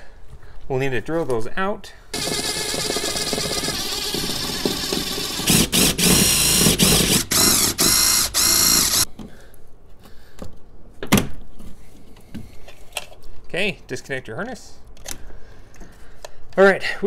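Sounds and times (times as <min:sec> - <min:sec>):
drill grinding through rivets: 0:02.2 - 0:09.1.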